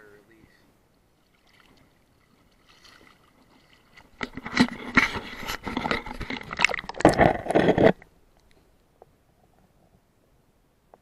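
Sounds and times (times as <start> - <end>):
water splashing against camera: 1.2 - 8.6.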